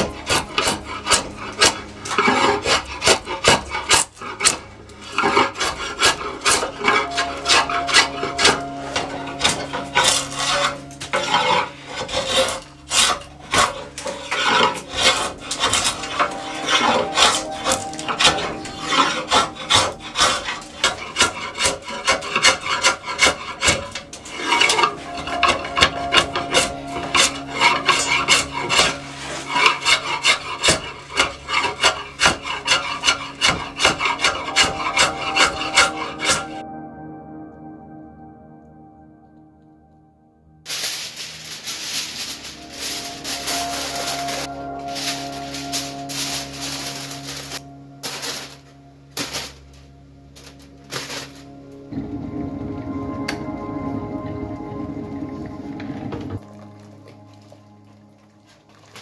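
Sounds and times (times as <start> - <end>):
rasp filing wood: 0.0 - 36.6.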